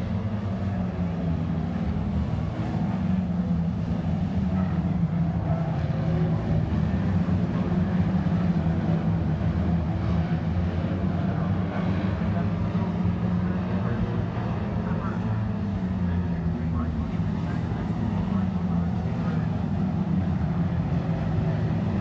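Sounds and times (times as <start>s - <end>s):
racing car engines droning: 0.0s - 22.0s.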